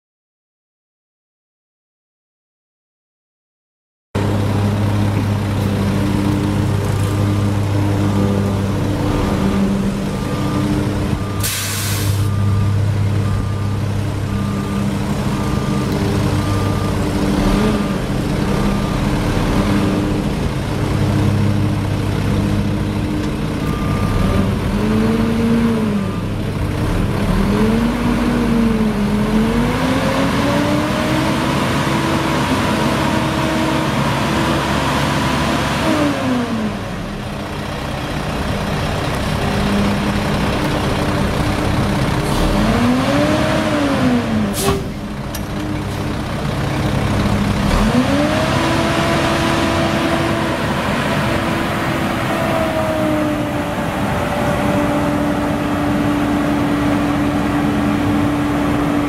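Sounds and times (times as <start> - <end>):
engine revving: 4.2 - 12.6, 13.3 - 37.2, 38.2 - 59.0
diesel truck engine idling: 4.2 - 24.9, 36.7 - 42.8, 44.2 - 47.9
air brake hiss: 11.4 - 12.3, 44.5 - 45.0.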